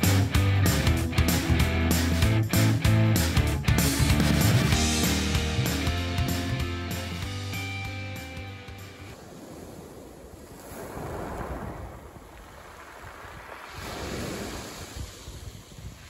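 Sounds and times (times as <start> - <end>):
background music: 0.0 - 9.2
small waves washing up pebble beach: 9.1 - 16.0.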